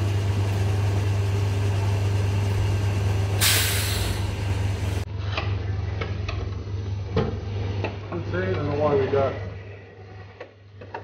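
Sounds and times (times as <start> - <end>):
sand mixer humming: 0.0 - 5.1
short loud hiss: 3.4 - 4.2.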